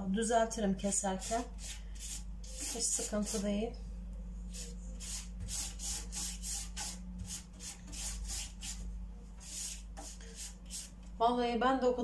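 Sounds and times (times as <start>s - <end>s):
pastry brush strokes: 1.0s - 3.6s, 4.3s - 11.0s.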